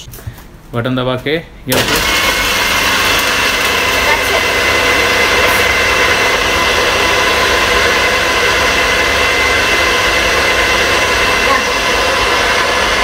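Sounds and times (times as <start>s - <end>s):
blender motor whining: 1.7s - 13.0s.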